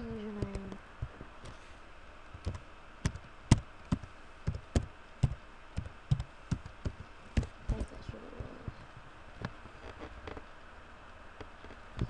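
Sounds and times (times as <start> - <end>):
keyboard keys clicking: 2.4 - 7.8.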